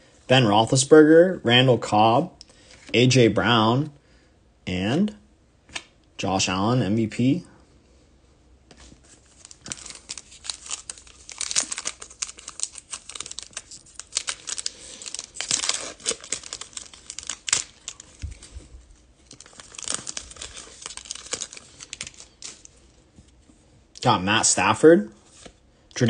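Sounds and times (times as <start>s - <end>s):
foil wrapper crinkling and tearing: 9.2s - 22.8s.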